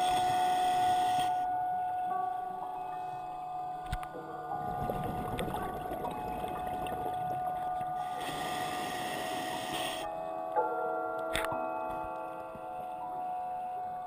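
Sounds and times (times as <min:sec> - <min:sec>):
hissing regulator inhale: 0:00.0 - 0:01.5, 0:08.0 - 0:10.2
exhale bubbles underwater: 0:04.5 - 0:10.0.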